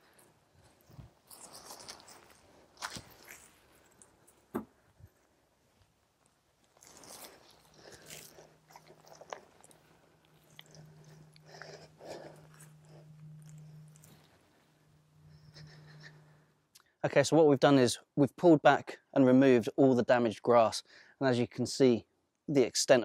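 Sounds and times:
faint low hum: 0:00.0 - 0:16.7
turf tearing and crunching: 0:01.2 - 0:04.0, 0:06.2 - 0:14.3.

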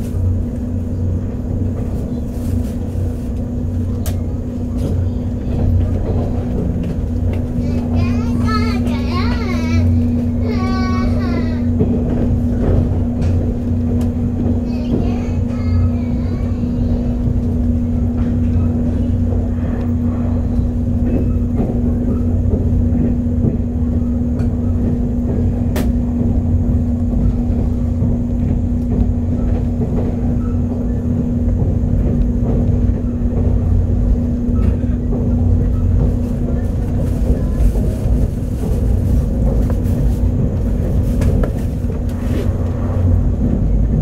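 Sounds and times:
train cabin rumble: 0:00.0 - 0:44.0
low hum: 0:37.3 - 0:44.0.

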